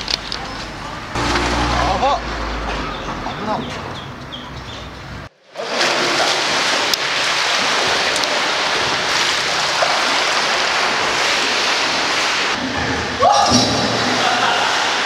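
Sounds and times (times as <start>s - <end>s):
water splashing in a pool: 5.3s - 15.0s.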